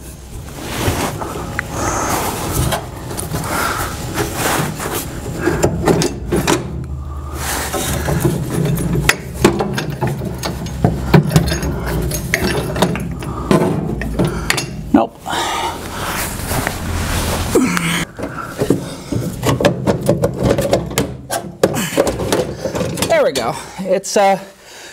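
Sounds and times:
steady low hum: 0.0s - 19.6s
metal knocks and scraping: 4.1s - 14.9s, 18.0s - 23.6s.

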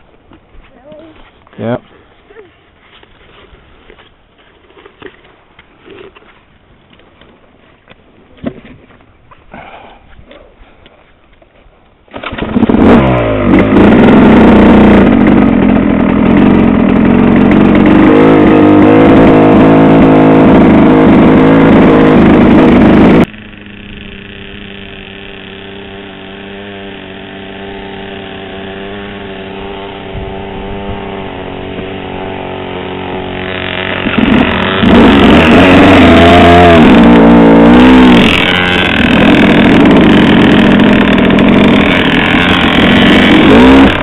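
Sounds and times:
motorcycle engine revving and running: 12.1s - 44.0s.

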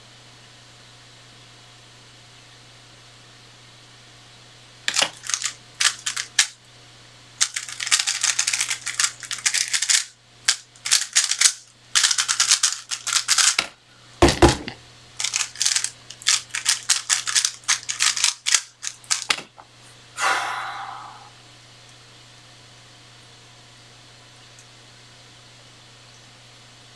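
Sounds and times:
faint low hum: 14.9s - 26.3s
puzzle cube plastic clicking: 15.2s - 19.4s.

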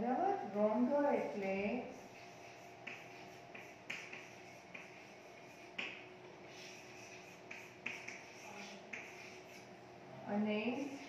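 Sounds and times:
chalk scratching on blackboard: 1.7s - 9.8s, 10.7s - 11.0s.

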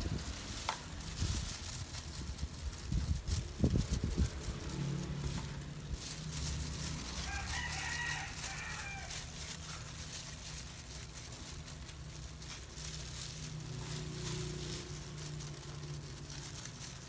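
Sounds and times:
bird crowing: 7.2s - 9.3s.

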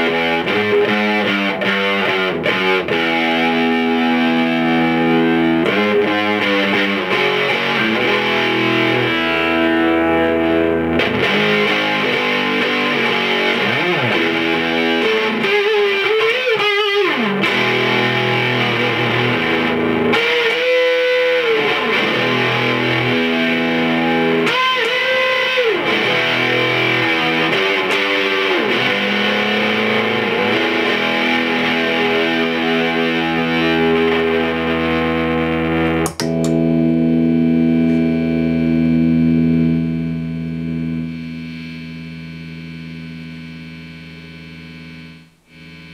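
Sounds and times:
fuzz electric guitar: 0.0s - 45.9s
sharp click: 36.0s - 36.6s.

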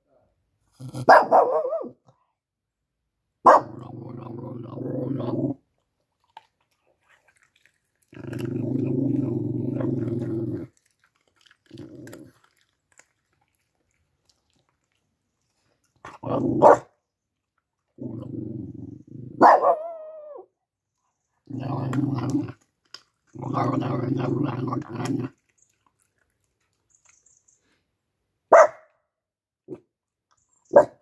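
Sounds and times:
dog barking: 1.0s - 2.0s, 3.4s - 3.7s, 16.6s - 16.9s, 19.4s - 20.1s, 28.5s - 29.0s, 30.7s - 31.0s
small dog growling: 3.6s - 5.6s, 7.3s - 14.6s, 18.0s - 20.4s, 21.4s - 22.6s, 23.3s - 25.4s.

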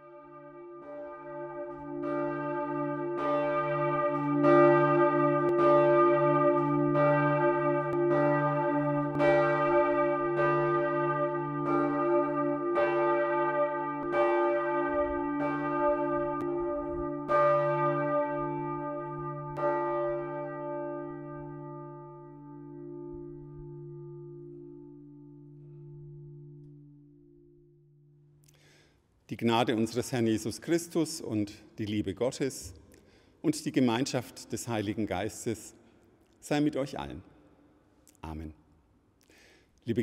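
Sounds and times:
church bells ringing: 0.0s - 28.4s, 29.4s - 31.2s.

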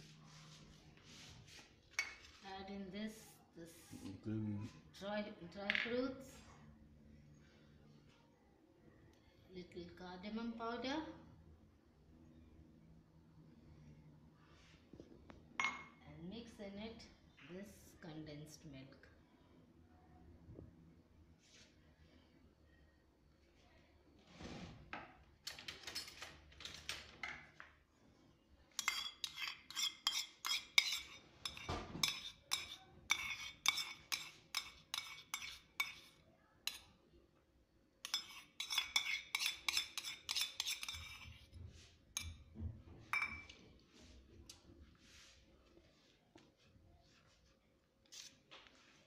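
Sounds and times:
spoon clinking on steel plate: 28.8s - 36.1s, 38.0s - 41.3s, 43.2s - 43.6s.

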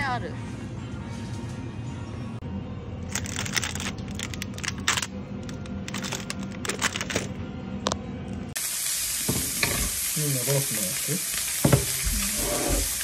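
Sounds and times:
plastic packaging crinkling: 3.1s - 7.2s
meat sizzling on a hot plate: 8.6s - 13.0s.

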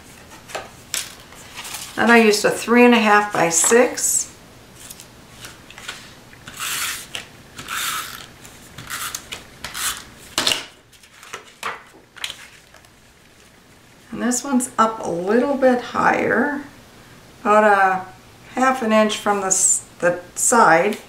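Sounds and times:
paper sliding and rustling: 0.1s - 2.2s, 4.8s - 10.1s.

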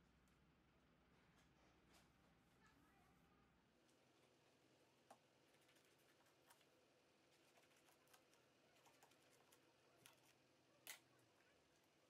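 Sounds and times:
scissors snipping: 8.0s - 11.0s.

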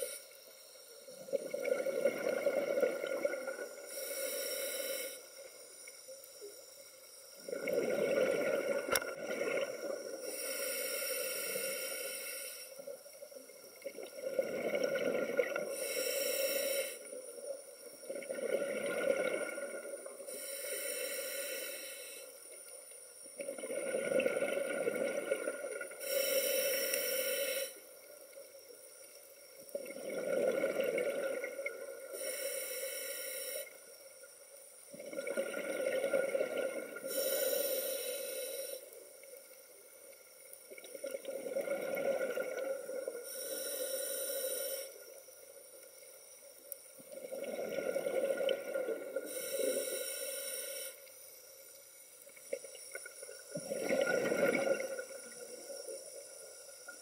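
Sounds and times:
regulator hiss: 3.5s - 7.5s, 9.9s - 13.9s, 15.6s - 18.2s, 19.7s - 23.4s, 25.8s - 29.6s, 31.7s - 34.9s, 37.0s - 40.7s, 43.1s - 46.9s, 49.1s - 53.8s.

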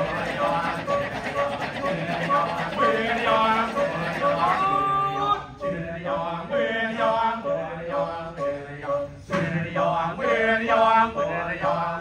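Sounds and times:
male chorus chanting: 0.0s - 12.0s.

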